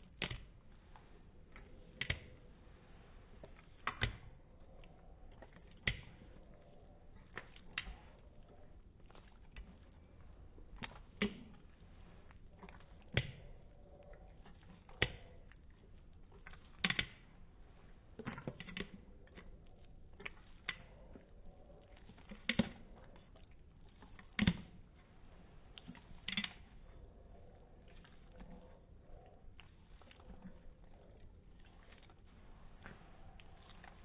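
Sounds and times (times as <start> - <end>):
dog licking metal spoon: 0.0 - 34.0.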